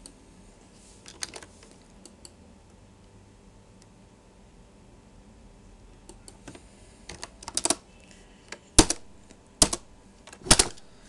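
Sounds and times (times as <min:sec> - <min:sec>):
computer keyboard keystrokes: 0:06.1 - 0:07.8, 0:08.8 - 0:10.8.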